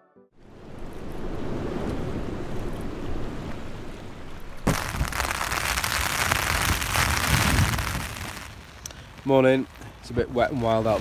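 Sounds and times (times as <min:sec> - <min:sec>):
gusting wind rumbling: 0:00.4 - 0:11.0
rain pattering on a tent: 0:04.6 - 0:11.0.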